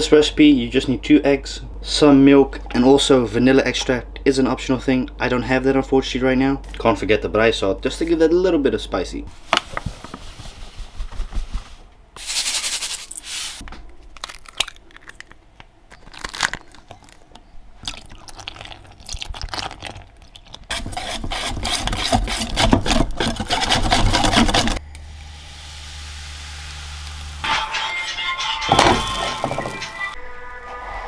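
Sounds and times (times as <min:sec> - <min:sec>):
steady low hum: 0:24.3 - 0:29.4
utensils knocking and scraping bowl: 0:27.5 - 0:30.2.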